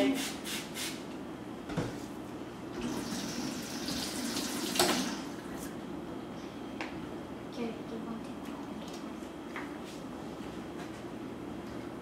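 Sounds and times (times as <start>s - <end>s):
kitchen faucet running: 2.8s - 5.4s.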